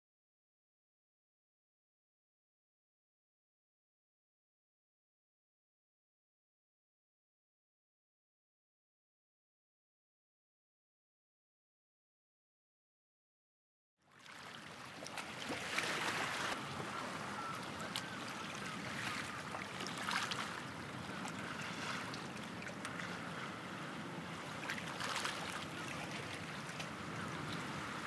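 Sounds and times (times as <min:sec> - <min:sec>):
sea waves washing in: 0:14.1 - 0:28.0.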